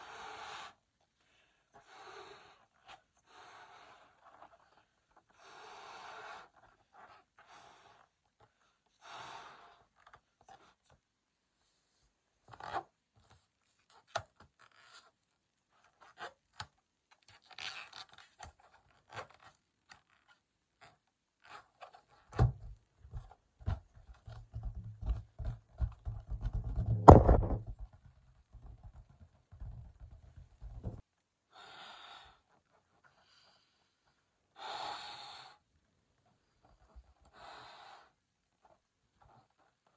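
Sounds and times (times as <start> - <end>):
dull thumps on balloon: 22.3 - 31.0
balloon rubbing and clicks: 23.6 - 31.0.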